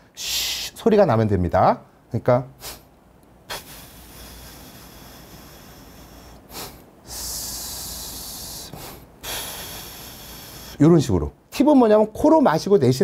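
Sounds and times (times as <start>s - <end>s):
man sniffing in: 0.2s - 0.8s, 2.6s - 2.9s, 3.5s - 10.8s
hissing breath through teeth: 3.5s - 10.8s.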